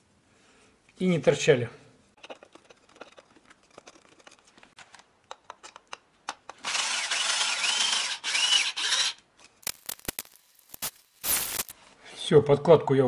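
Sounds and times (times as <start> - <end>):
drill driving screws into wood: 6.6 - 10.1.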